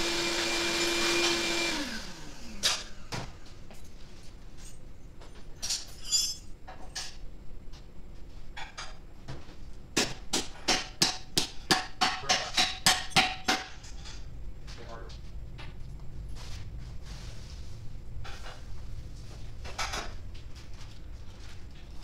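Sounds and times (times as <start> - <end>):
shop vacuum motor winding down: 0.0 - 3.2.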